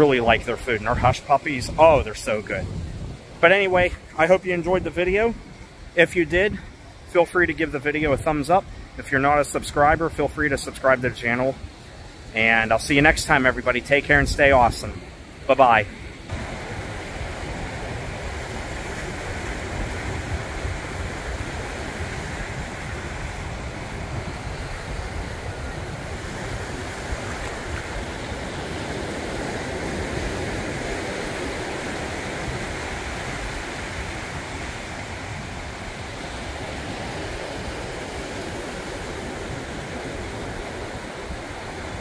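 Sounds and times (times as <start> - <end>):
wind on microphone: 0.0 - 6.8, 15.8 - 42.0
surf washing onto beach: 0.0 - 42.0.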